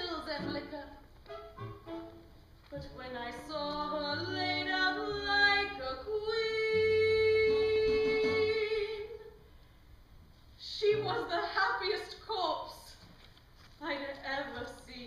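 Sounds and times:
woman singing into microphone: 3.0s - 9.3s.

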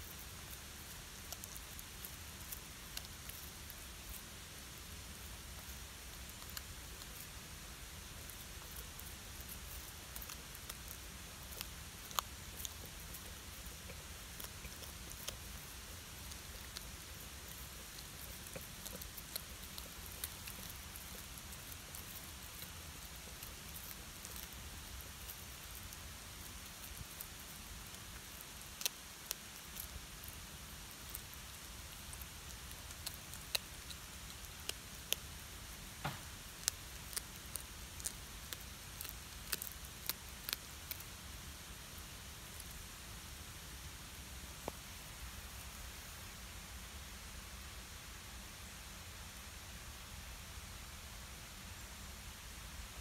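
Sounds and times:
background hiss: 0.0s - 53.0s
cat crunching fish bones: 8.3s - 35.4s, 36.5s - 41.1s.

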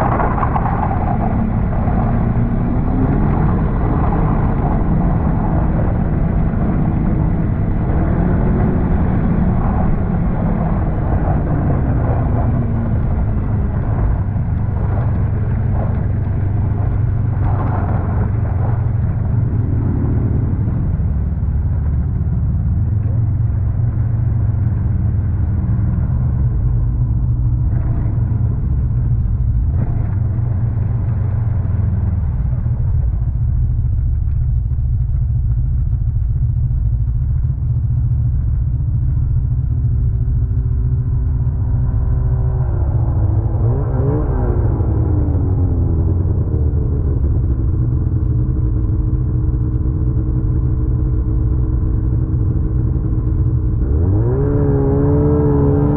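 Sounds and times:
snowmobile engine running: 0.0s - 55.9s.

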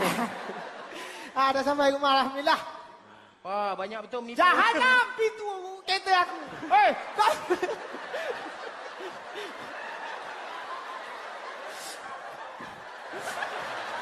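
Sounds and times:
audience laughing: 0.0s - 1.4s, 6.3s - 14.0s.

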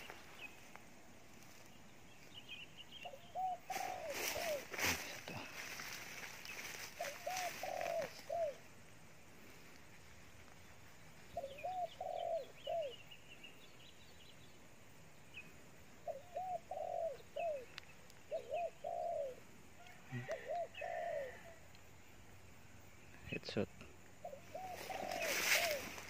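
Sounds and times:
small birds chirping: 0.0s - 26.0s
dove cooing: 3.0s - 5.9s, 6.8s - 8.7s, 11.3s - 13.0s, 16.0s - 17.7s, 18.3s - 21.6s, 24.2s - 26.0s.

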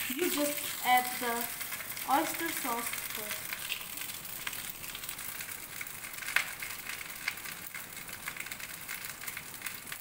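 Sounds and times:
rice sizzling in a wok: 0.0s - 10.0s.

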